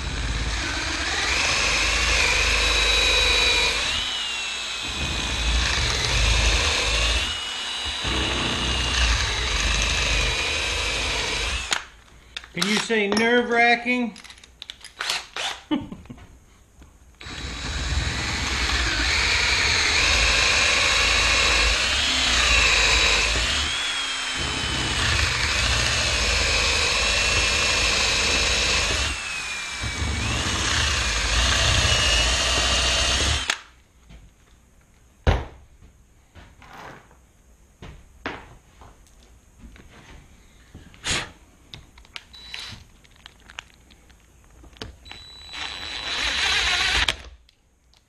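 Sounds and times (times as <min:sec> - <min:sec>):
power drill boring into wood: 0:00.0 - 0:11.9, 0:15.0 - 0:15.6, 0:17.2 - 0:33.7, 0:42.3 - 0:42.8, 0:45.0 - 0:47.2.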